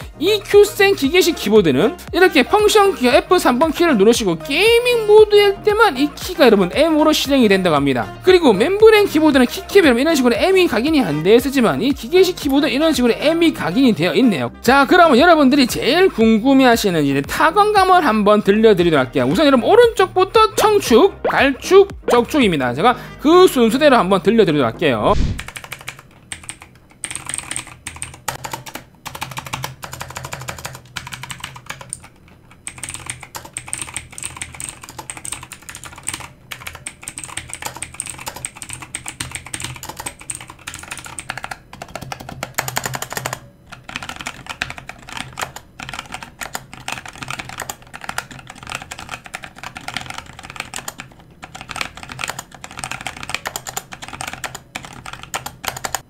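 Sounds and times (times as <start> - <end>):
fast typing on mechanical keyboard: 25.4 - 56.0.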